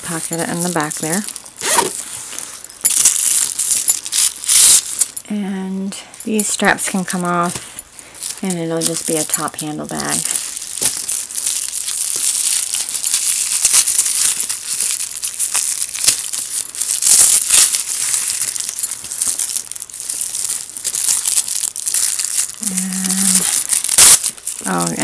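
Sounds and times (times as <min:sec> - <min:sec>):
plastic wrapping crinkling: 0:00.0 - 0:05.3, 0:06.2 - 0:25.0.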